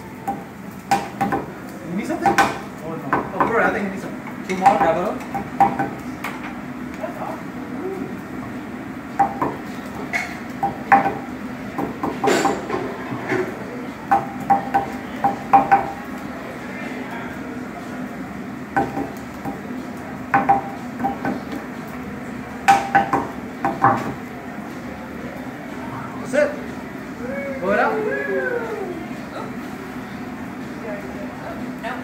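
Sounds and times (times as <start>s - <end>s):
metal spatulas clanking on griddle: 12.1s - 13.5s.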